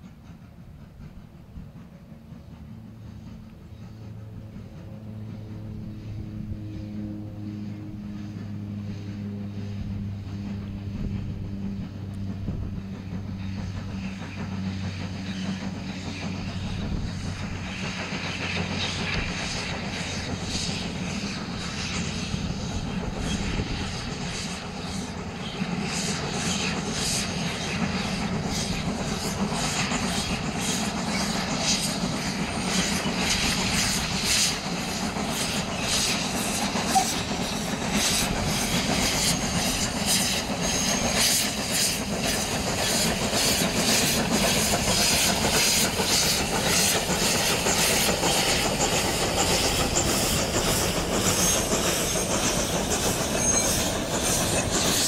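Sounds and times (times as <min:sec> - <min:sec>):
steam locomotive chuffing: 0:00.0 - 0:55.0
steam hissing: 0:12.5 - 0:55.0.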